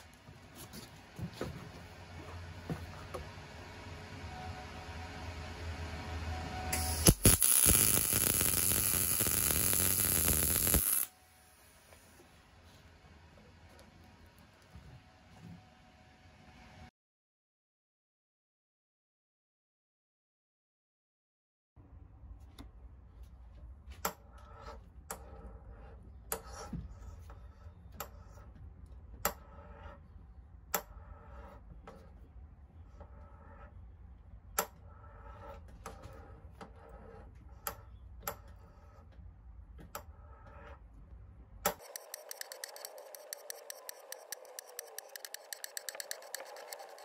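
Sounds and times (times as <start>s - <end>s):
tap wrench clicking: 41.7s - 47.0s.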